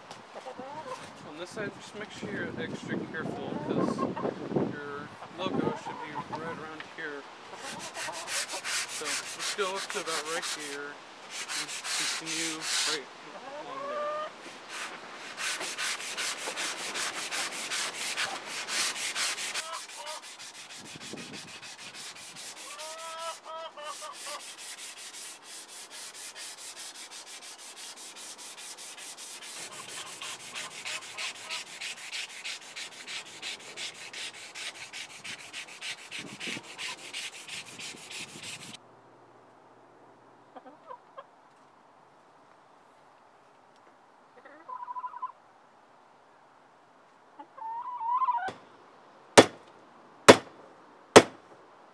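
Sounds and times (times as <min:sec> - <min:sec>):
sandpaper scrubbing saw blade: 0:07.6 - 0:13.0, 0:14.6 - 0:38.8.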